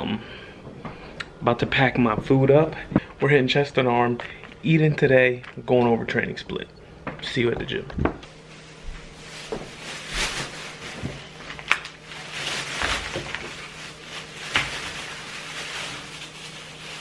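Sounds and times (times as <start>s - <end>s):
faint steady hum: 0.0s - 17.0s
plastic bag rustling: 8.3s - 17.0s.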